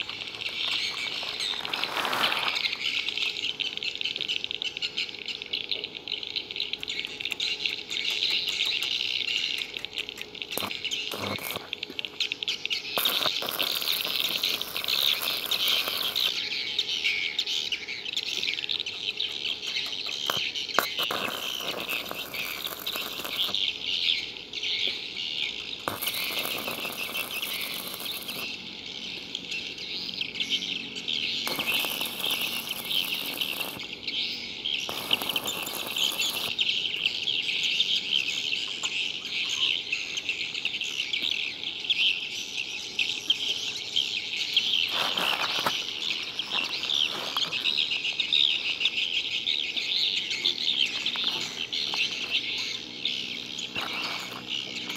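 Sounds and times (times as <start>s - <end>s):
electric arc welding crackle: 0.0s - 3.2s, 10.2s - 12.2s, 12.9s - 16.6s, 18.9s - 23.7s, 25.7s - 28.7s, 31.4s - 34.0s, 34.8s - 36.6s, 44.6s - 48.0s, 51.0s - 54.9s
high-pitched chirping: 0.0s - 41.6s, 43.0s - 54.9s.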